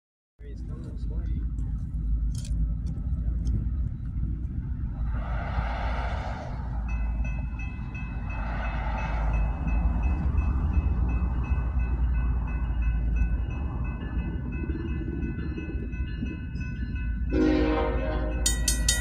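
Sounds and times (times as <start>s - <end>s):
low rumble: 0.4s - 11.8s
railroad crossing bell ringing: 6.9s - 19.0s
horn blasts: 17.3s - 18.6s.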